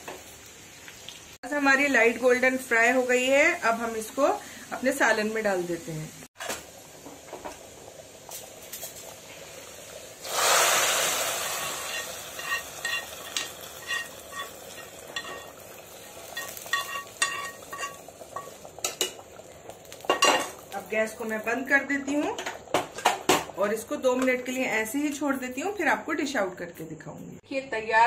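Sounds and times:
hot oil sizzling: 0.0 - 26.4
spoon scraping frying pan: 11.4 - 19.2, 19.9 - 20.7.

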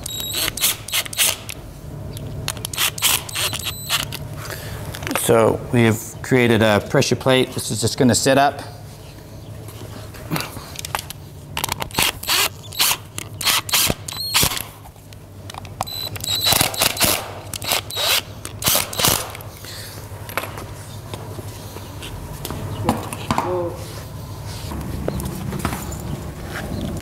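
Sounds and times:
cordless drill driving screws: 0.0 - 1.6, 2.5 - 4.1, 11.9 - 14.7, 15.9 - 19.4.

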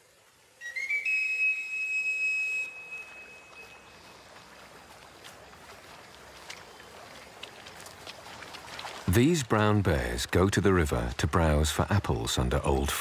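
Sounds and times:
high whistled tone: 0.6 - 4.0.

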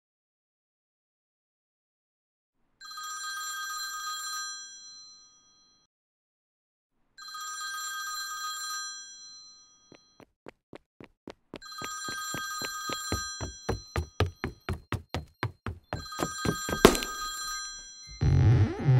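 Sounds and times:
short thuds: 11.8 - 17.8.

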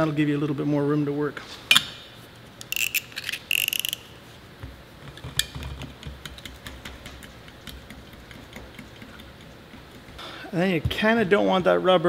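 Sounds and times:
box cutter blade ratcheting: 2.6 - 4.1.

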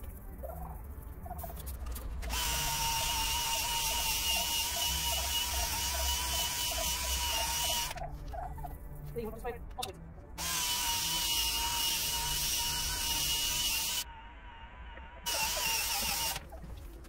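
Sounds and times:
small electric power tool whining: 2.3 - 8.0, 10.4 - 14.2, 14.8 - 16.5.

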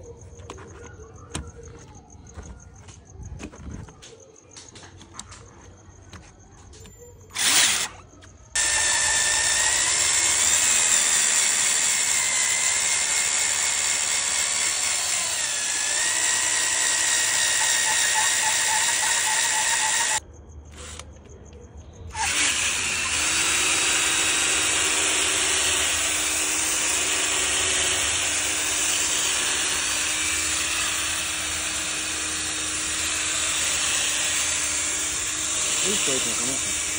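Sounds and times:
cordless drill whining: 7.3 - 8.0, 8.6 - 20.2, 22.1 - 36.9.

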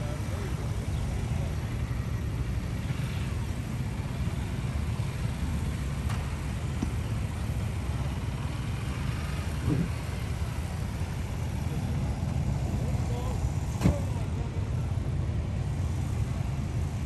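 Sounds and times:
motorcycles idling rumble: 0.0 - 17.0
motorcycle engine revving: 1.1 - 11.6.

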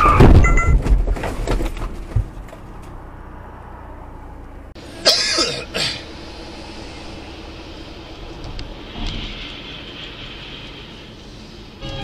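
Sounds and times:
car road and engine noise: 0.0 - 12.0.

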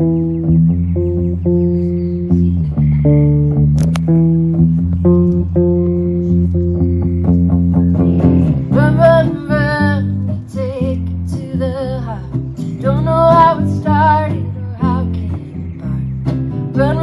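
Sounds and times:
acoustic guitar: 0.0 - 17.0
low bass line: 0.0 - 17.0
woman singing: 8.7 - 17.0.

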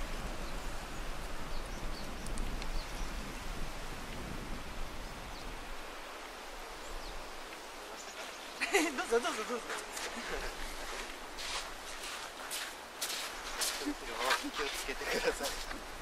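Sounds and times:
wind on microphone: 0.0 - 8.6
faint high ticks: 2.2 - 2.8.

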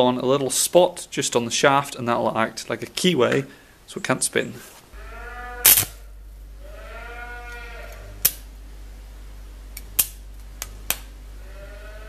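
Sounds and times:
welding arc cracks: 5.6 - 6.0
arc welder humming: 5.6 - 11.5.

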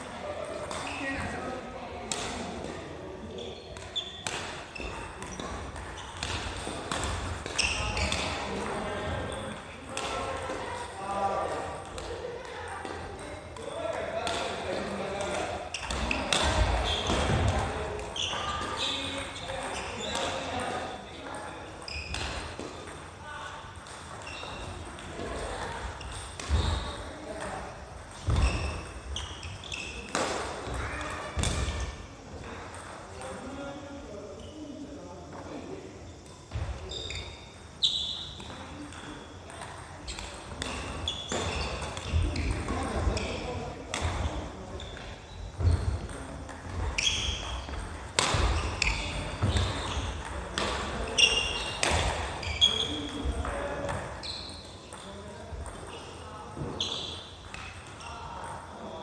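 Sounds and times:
shoes squeaking on court: 3.3 - 8.5, 15.6 - 20.5, 21.8 - 22.9, 23.8 - 25.0, 28.1 - 32.0, 36.5 - 55.0, 55.6 - 58.6
rackets striking shuttlecock: 3.8 - 8.7, 45.8 - 52.4.

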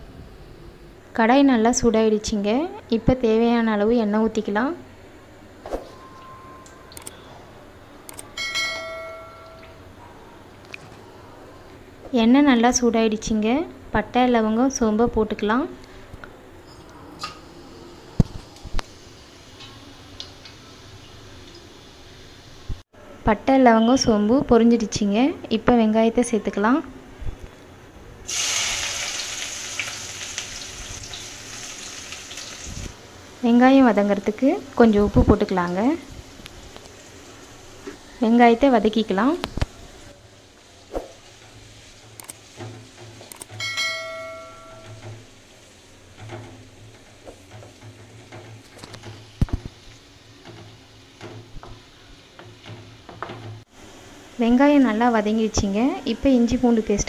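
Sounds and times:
bell-like chime: 8.4 - 9.8, 43.6 - 45.0
onions sizzling in hot oil: 18.2 - 22.8, 28.3 - 43.3, 44.7 - 57.0.

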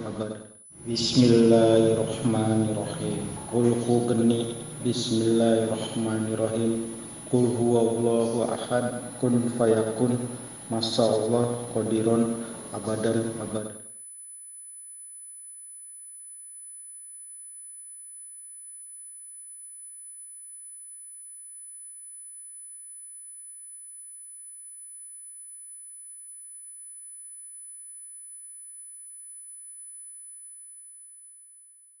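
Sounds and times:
fainter steady tones: 0.0 - 13.7.

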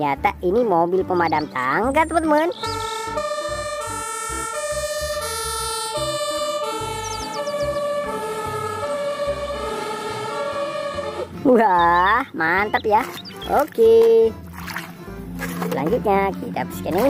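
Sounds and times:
two-tone fire truck siren: 1.6 - 12.8.

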